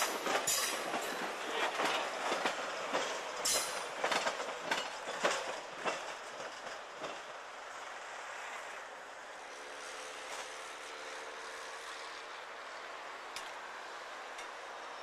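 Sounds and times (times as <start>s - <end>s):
train wheels clacking and clanking: 0.0s - 7.4s, 14.2s - 14.7s
freight train rumble: 0.0s - 15.0s.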